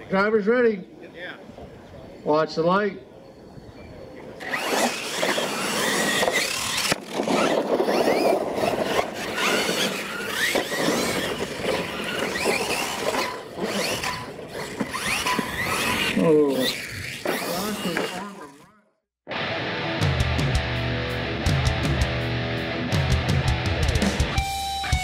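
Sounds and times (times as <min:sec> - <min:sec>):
electric motors whining: 0:04.4 - 0:18.7.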